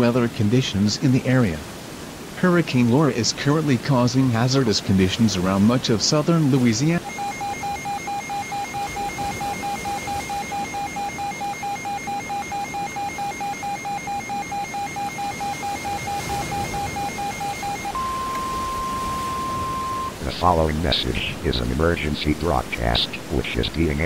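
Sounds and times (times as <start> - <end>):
constant hiss: 0.0 - 24.0
rapid electronic beeps: 7.0 - 21.6
steady electronic tone: 7.0 - 24.0.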